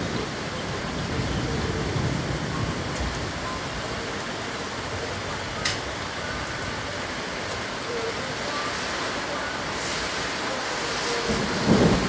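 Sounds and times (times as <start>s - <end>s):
low thunder rumble: 0.0s - 5.6s, 11.1s - 12.0s
rain hissing: 0.0s - 12.0s.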